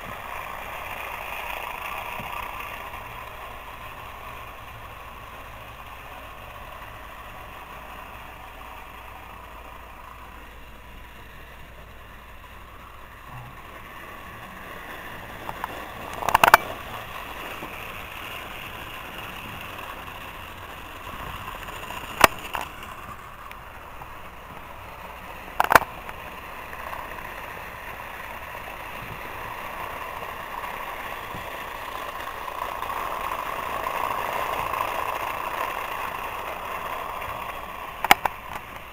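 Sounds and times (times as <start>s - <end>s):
toy train motor whirring: 0.0s - 38.9s
sharp clicks: 15.4s - 17.0s, 21.5s - 24.1s, 25.5s - 27.0s, 33.9s - 38.9s.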